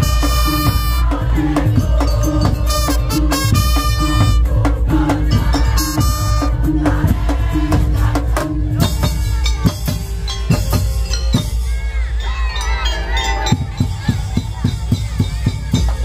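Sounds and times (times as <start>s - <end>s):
trumpets and saxophones: 0.0s - 7.6s
barrel drums and percussion: 0.0s - 16.0s.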